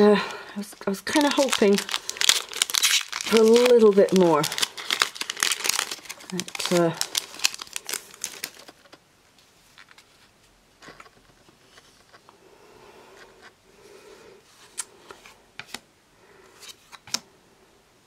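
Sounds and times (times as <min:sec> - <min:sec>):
cards rustling: 0:00.0 - 0:09.0, 0:09.7 - 0:12.3.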